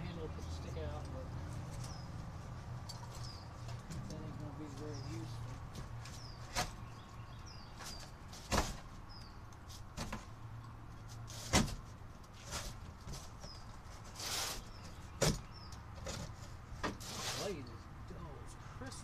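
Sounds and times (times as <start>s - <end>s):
cardboard scraping: 11.3s - 15.4s, 16.0s - 17.6s.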